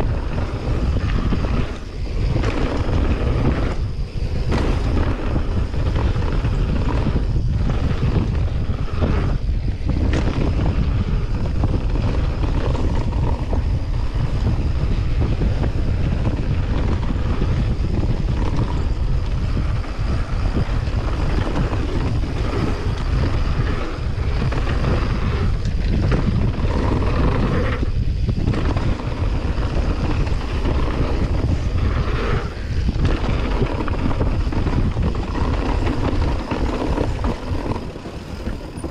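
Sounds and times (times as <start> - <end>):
tyre roar on gravel trail: 0.0 - 38.9
wind rushing over microphone: 0.0 - 38.9
bike knocking over bumps: 0.1 - 8.4.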